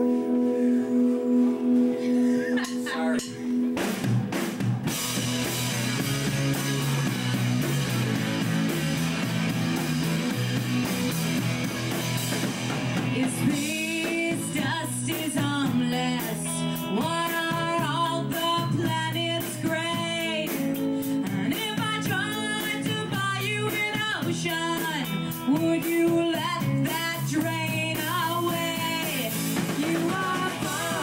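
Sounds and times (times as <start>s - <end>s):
bending sliding melodic line: 0.0s - 3.7s
live rock band playing: 0.0s - 31.0s.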